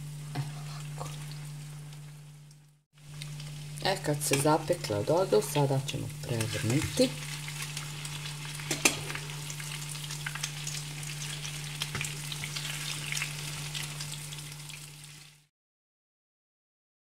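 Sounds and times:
bread sizzling in hot oil: 0.0s - 15.5s
metal tongs clicking on pan: 4.3s - 4.6s, 8.7s - 9.0s.

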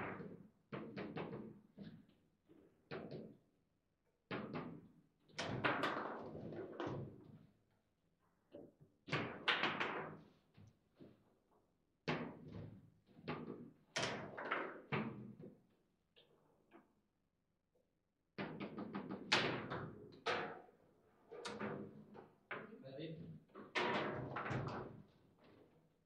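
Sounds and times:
table football knocks and clacks: 0.0s - 2.0s, 2.9s - 3.4s, 4.3s - 7.3s, 9.1s - 10.2s, 12.1s - 15.5s, 18.4s - 20.7s, 23.3s - 25.1s.

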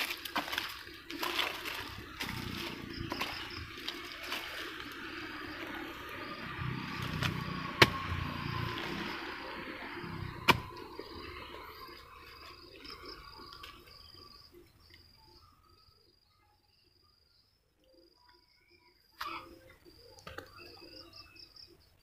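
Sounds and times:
hoe striking soil: 0.0s - 5.0s, 7.0s - 9.2s, 10.0s - 11.0s
hoe scraping and digging soil: 0.0s - 14.1s
insect chirring: 0.0s - 22.0s.

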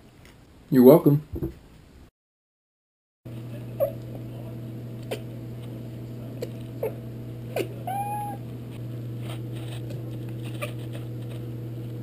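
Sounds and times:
cat meowing: 7.8s - 8.4s.

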